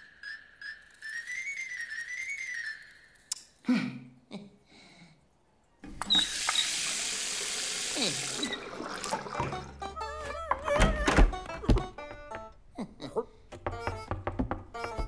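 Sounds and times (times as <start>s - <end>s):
small clicks and squeaks: 0.2s - 3.6s, 5.8s - 6.8s
tap water gushing into bath: 5.9s - 9.8s.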